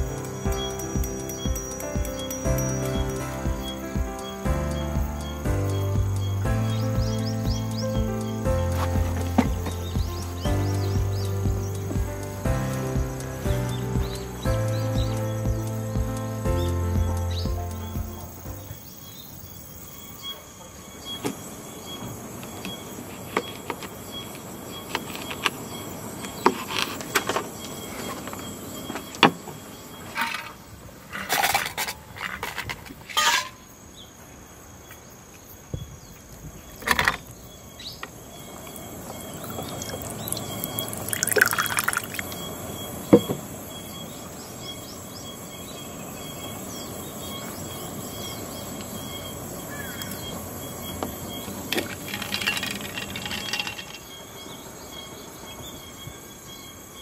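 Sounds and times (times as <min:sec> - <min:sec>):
insects chirping: 0:00.0 - 0:57.0
liquid poured over ice into metal mug: 0:39.4 - 0:42.4.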